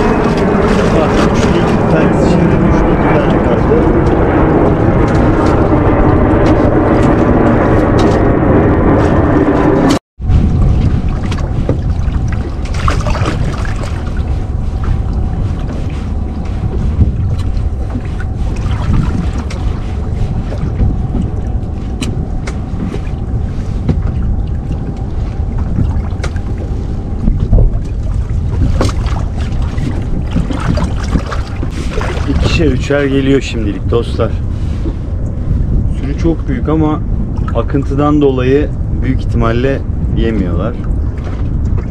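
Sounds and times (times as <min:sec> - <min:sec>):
boat low rumble: 0:00.0 - 0:41.9
thin steady hum: 0:10.2 - 0:41.9.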